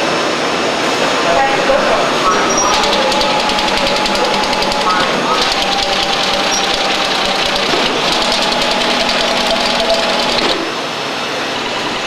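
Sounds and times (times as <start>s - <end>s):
low machine hum: 0.4s - 12.0s
collator mechanical clatter: 2.2s - 10.8s.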